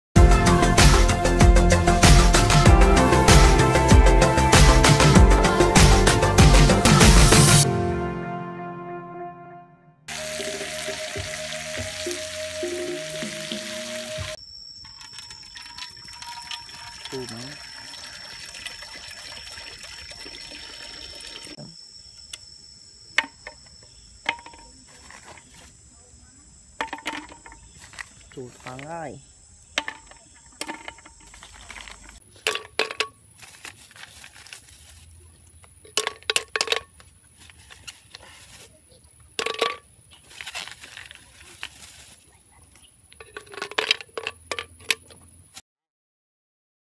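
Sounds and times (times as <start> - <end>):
music playing: 0.2 - 14.4.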